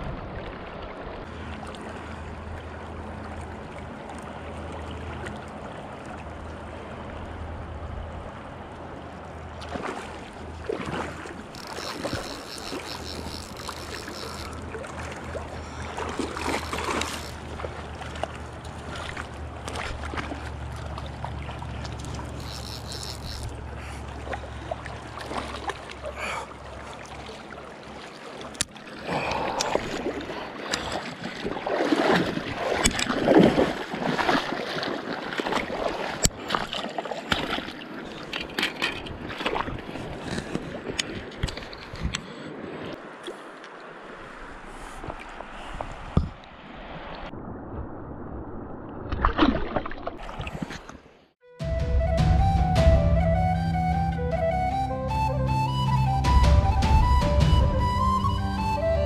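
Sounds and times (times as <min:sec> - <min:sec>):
river water over rocks: 0:00.0 - 0:47.6
fish splashing: 0:09.6 - 0:38.3.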